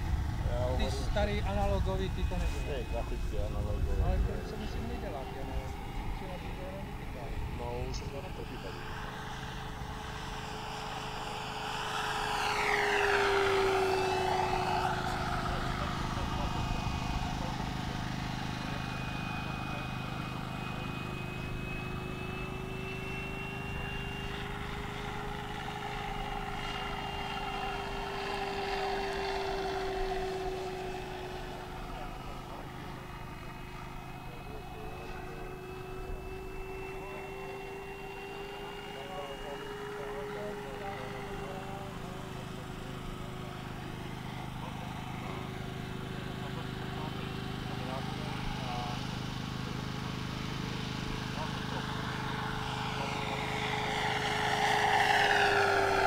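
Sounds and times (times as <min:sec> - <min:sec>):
model plane propeller whine: 0:00.0 - 0:56.0.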